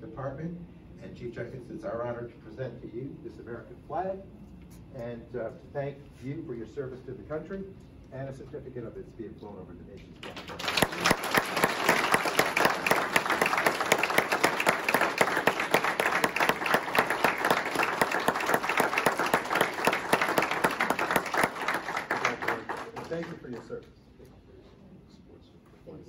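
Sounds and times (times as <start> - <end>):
audience applauding: 10.2 - 23.7.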